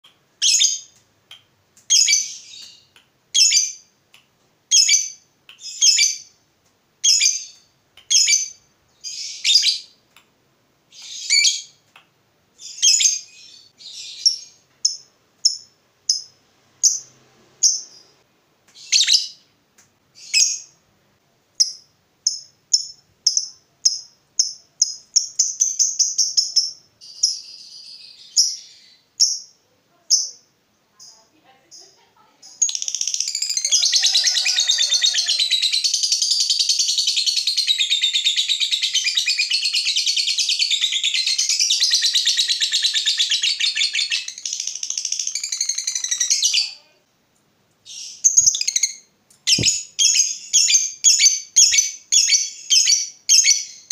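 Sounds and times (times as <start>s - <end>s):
lovebird shrieking and chattering: 32.8s - 36.4s.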